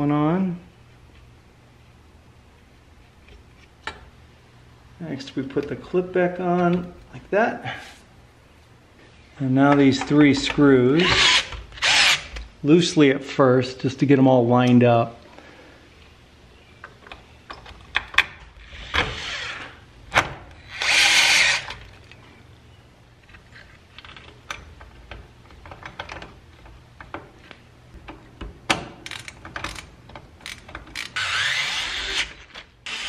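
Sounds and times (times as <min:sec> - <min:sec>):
power driver driving screws: 0:11.0 - 0:12.4, 0:20.6 - 0:21.9, 0:29.1 - 0:33.0
metal parts clicking and tapping: 0:23.3 - 0:31.2.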